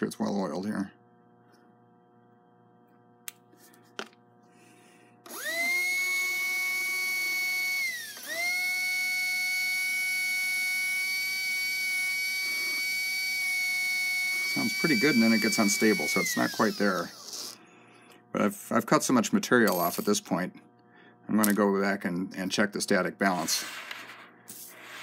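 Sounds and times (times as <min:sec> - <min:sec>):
electric motor high whine: 0:05.2 - 0:17.7.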